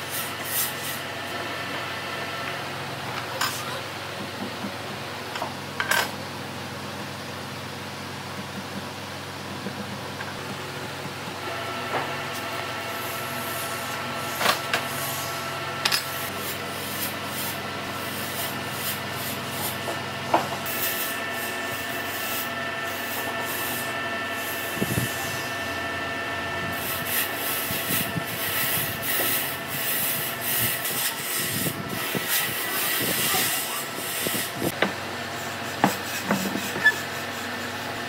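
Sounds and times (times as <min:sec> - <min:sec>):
workshop machine hum: 0:00.0 - 0:38.0
pencil rubbing on wood: 0:35.4 - 0:38.0.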